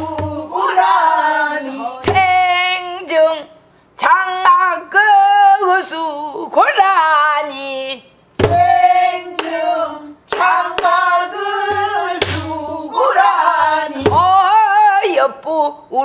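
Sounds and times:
sharp drum strokes: 8.4s - 9.7s, 10.3s - 12.7s.

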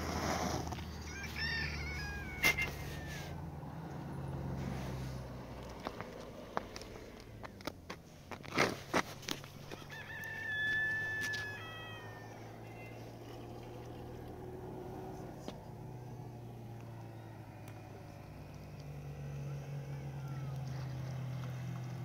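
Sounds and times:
rooster crowing: 0.9s - 3.4s, 9.6s - 13.2s, 19.2s - 20.6s.

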